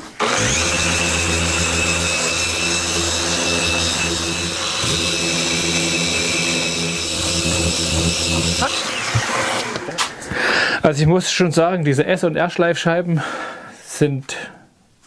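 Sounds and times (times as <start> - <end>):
orbital sander sanding wood: 0.0 - 10.4.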